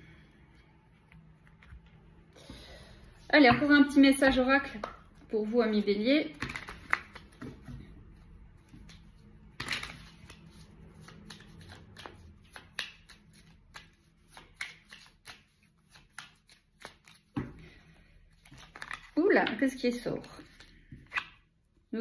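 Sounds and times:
cards being shuffled: 6.3s - 8.0s, 8.6s - 17.5s, 18.3s - 19.6s.

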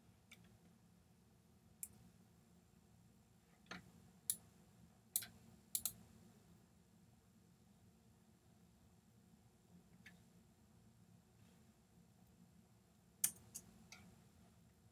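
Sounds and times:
computer mouse clicks: 5.2s - 6.0s, 13.2s - 14.1s.

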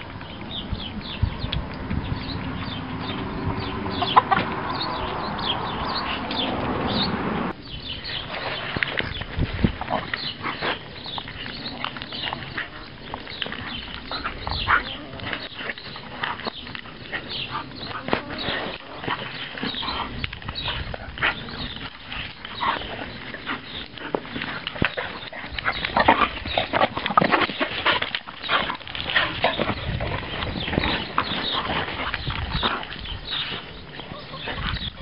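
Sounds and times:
dogs vocalising: 2.2s - 7.2s, 8.1s - 35.0s
dogs scuffling: 7.9s - 35.0s.

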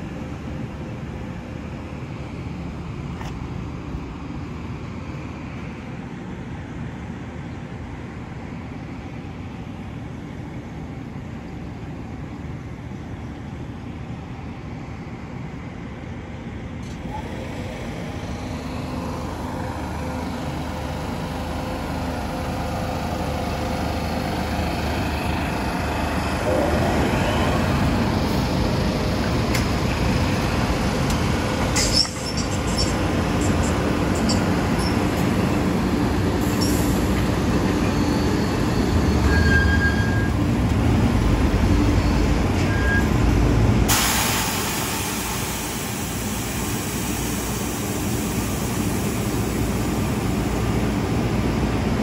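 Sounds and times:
rising and falling whine: 24.0s - 31.2s
sharp metallic clanks: 31.6s - 35.1s.

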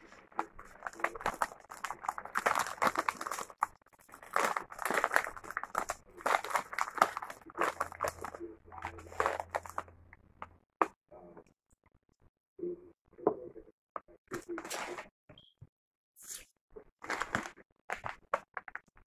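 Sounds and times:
plastic containers and chips crinkling: 0.0s - 10.0s, 17.0s - 19.0s.

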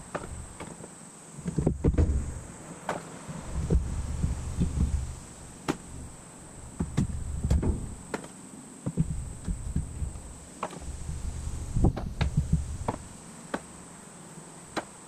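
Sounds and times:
wind rumbling on microphone: 1.4s - 2.6s, 3.2s - 8.1s, 8.9s - 13.2s.

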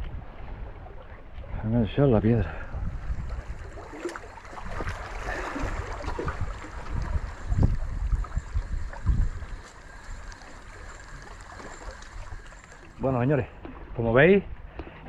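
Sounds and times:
wind buffeting microphone: 0.0s - 15.0s
sea waves washing: 0.4s - 14.0s.

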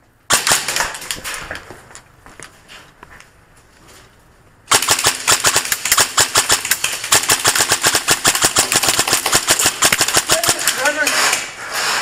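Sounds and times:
airsoft guns firing: 0.3s - 1.4s, 4.7s - 11.5s.

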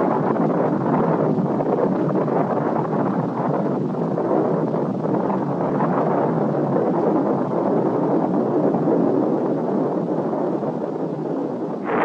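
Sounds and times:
rough rumble of rocket explosion: 11.8s - 12.0s.

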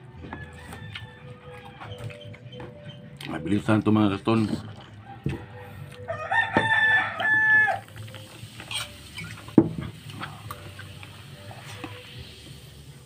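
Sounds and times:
rooster crowing: 0.1s - 2.3s, 5.0s - 7.9s.

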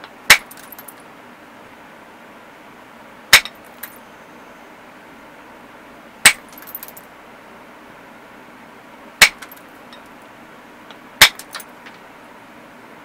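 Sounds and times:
glassy knapping clinks: 0.3s - 1.0s, 3.4s - 4.1s, 6.3s - 7.0s, 9.2s - 10.1s.

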